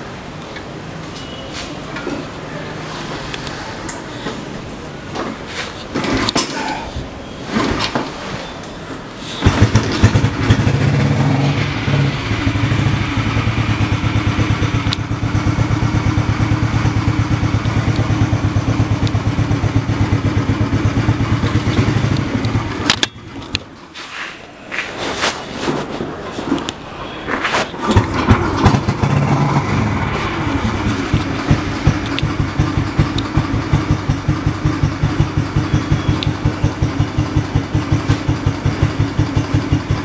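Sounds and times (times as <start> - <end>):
motorcycle engine idling: 9.4 - 23.4, 27.9 - 40.0
knocks and handling noises: 21.5 - 29.0.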